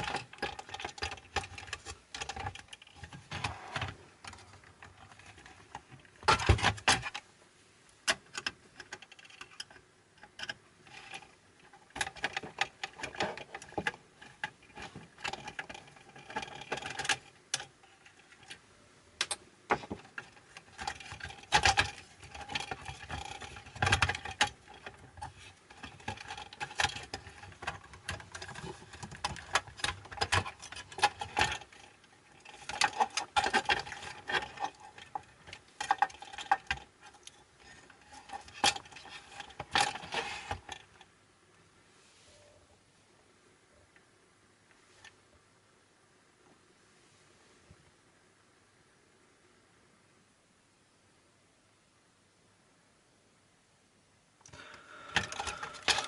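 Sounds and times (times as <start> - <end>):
tools and small parts clicking: 54.4 - 56.0.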